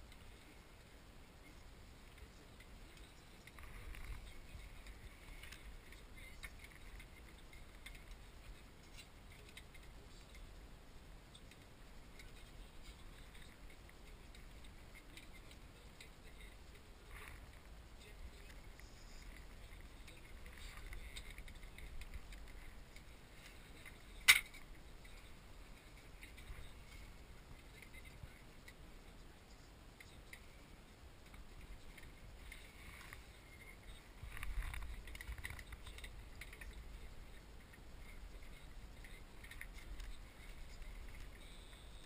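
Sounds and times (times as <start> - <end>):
small ticks and rustles: 0.0 - 42.0.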